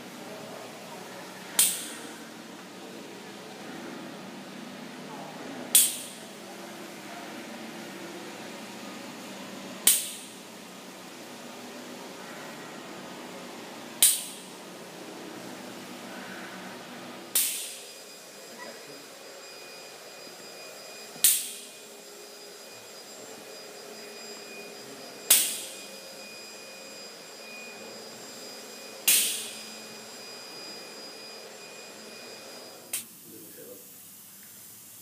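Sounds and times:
spray rig running with whine: 15.4 - 35.0.

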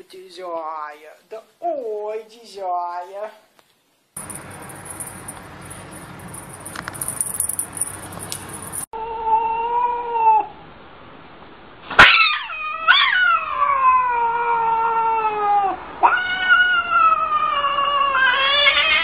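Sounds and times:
cat yowling: 9.0 - 10.5, 12.0 - 19.0.

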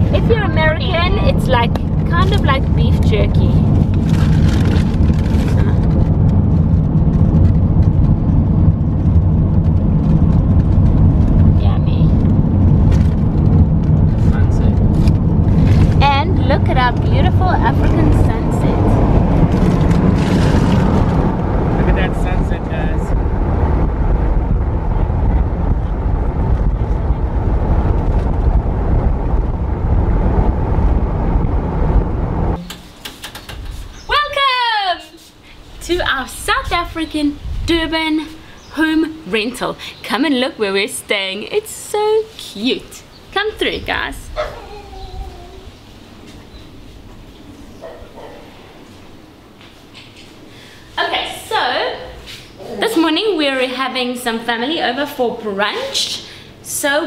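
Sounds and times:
road and engine noise in car: 0.0 - 33.0.

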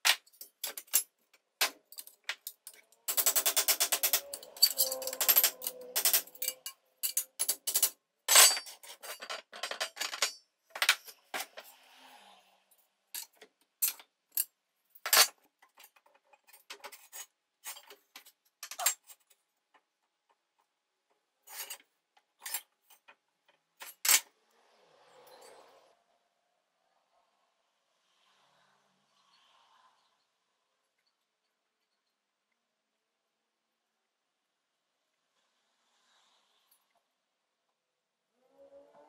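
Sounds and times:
tools and metal parts clicking: 0.0 - 11.6, 13.2 - 20.4, 21.4 - 24.3.

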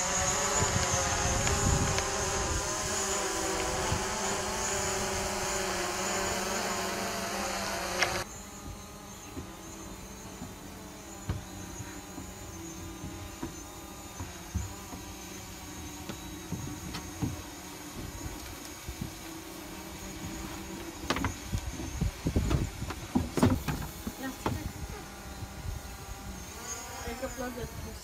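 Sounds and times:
steady droning hum: 0.0 - 27.7
footsteps on wooden stairs: 10.2 - 19.1.

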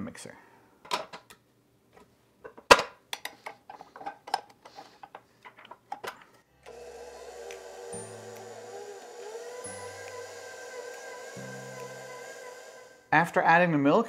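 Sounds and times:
stand mixer motor running: 6.7 - 13.1.

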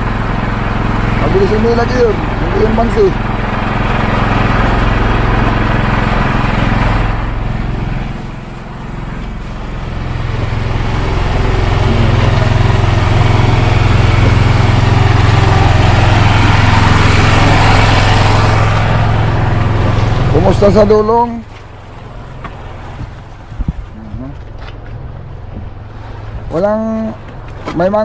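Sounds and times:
boat engine droning: 0.0 - 28.0.

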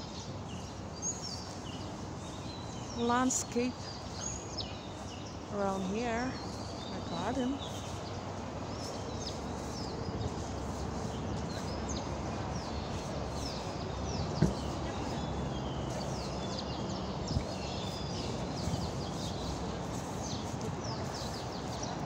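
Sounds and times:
small birds chirping: 0.0 - 22.0
steady background noise: 0.0 - 22.0
thump: 14.4 - 14.7.

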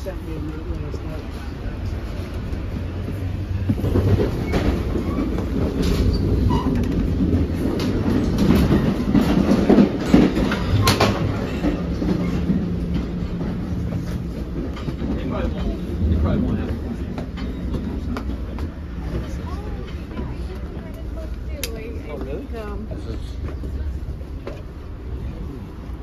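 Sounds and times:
train running rumble: 0.0 - 26.0.

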